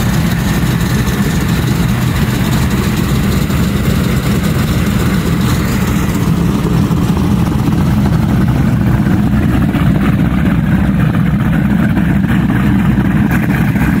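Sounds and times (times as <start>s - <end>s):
powerboat engines idling: 0.0s - 14.0s.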